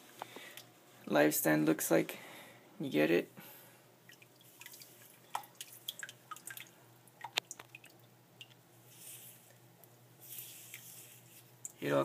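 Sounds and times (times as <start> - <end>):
soft water trickle: 3.4 - 12.0.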